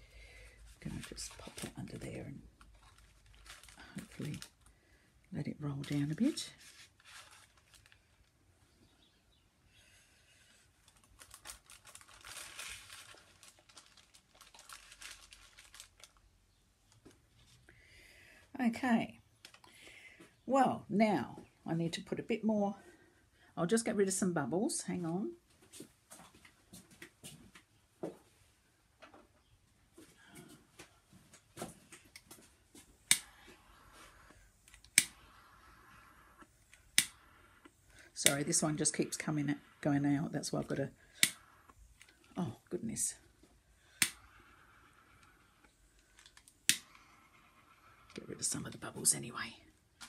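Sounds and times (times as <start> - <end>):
plastic sheeting crinkling: 0.8 - 4.7, 5.6 - 8.3, 10.8 - 17.6.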